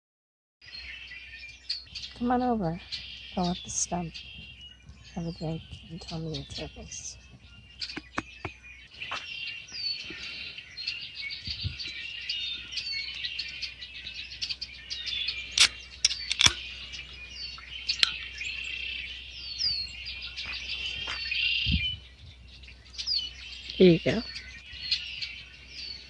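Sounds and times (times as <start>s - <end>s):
small birds chirping: 0.6s - 26.0s
sharp snaps: 15.6s - 16.6s.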